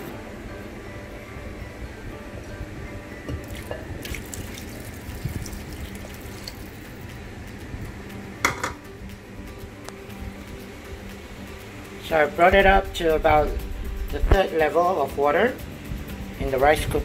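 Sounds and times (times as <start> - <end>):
water pouring and splashing: 3.4 - 7.0.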